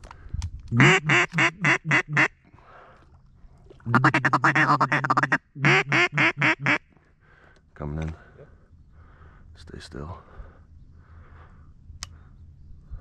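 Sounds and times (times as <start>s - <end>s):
duck call feeding chatter: 0.7s - 2.3s, 3.9s - 6.8s
duck call quacks: 0.7s - 2.3s, 3.9s - 6.8s.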